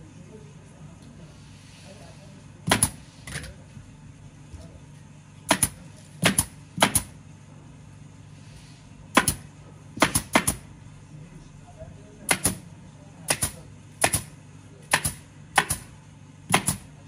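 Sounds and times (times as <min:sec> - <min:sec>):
staple gun firing: 0:12.3 - 0:12.6, 0:13.3 - 0:14.3, 0:14.9 - 0:15.9, 0:16.5 - 0:16.8.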